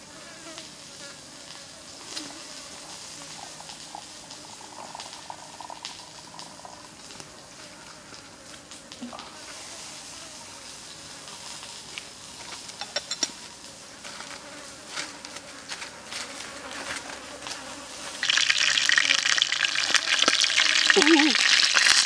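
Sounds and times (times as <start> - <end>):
insects buzzing: 0.0 - 22.0
small ticks and crackles: 0.2 - 22.0
frying in oil sizzling: 1.4 - 13.8, 17.9 - 22.0.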